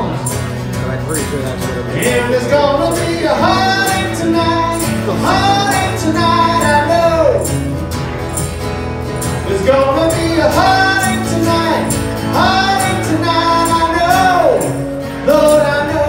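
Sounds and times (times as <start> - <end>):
strummed acoustic guitar: 0.0 - 16.0
man singing: 1.5 - 7.7, 9.4 - 16.0.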